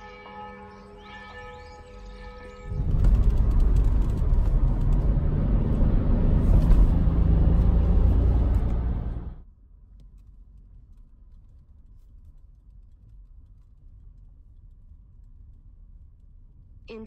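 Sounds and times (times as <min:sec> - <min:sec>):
car tyres and engine rumble: 0:02.7 - 0:13.4.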